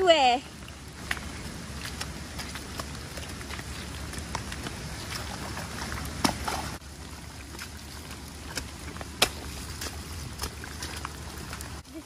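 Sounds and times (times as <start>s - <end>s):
boots squelching through mud: 0.2s - 12.0s.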